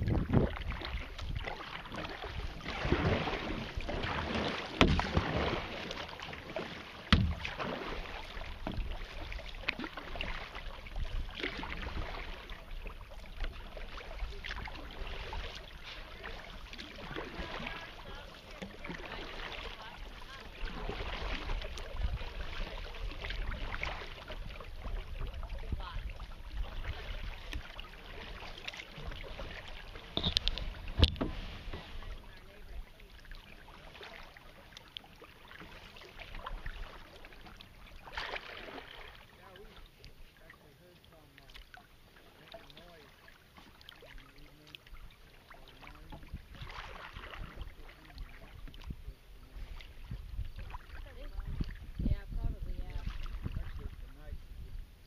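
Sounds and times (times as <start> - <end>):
kayak paddle splashing: 0.0 - 55.0
sharp knocks: 7.1 - 7.4.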